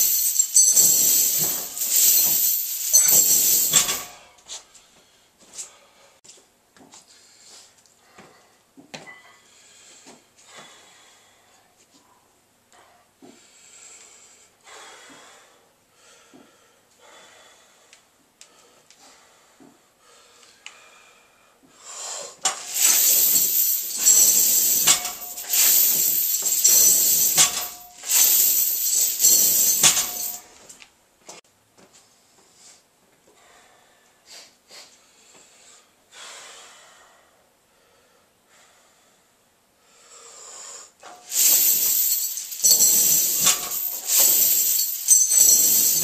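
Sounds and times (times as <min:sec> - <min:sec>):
chains rattling and jangling: 0:00.0 - 0:04.3, 0:22.5 - 0:30.6, 0:41.1 - 0:46.0
heavy breathing: 0:04.3 - 0:06.4, 0:07.0 - 0:08.7, 0:09.3 - 0:24.2, 0:32.1 - 0:41.5.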